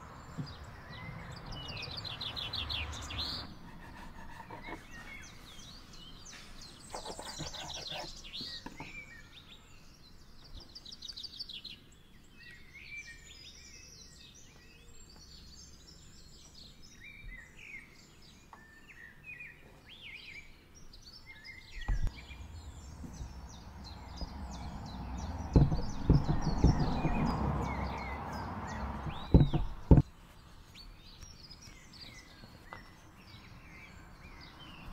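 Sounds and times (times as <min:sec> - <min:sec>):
small birds chirping: 0:00.0 - 0:34.9
dough thumping on wooden board: 0:25.5 - 0:27.7, 0:29.0 - 0:30.1.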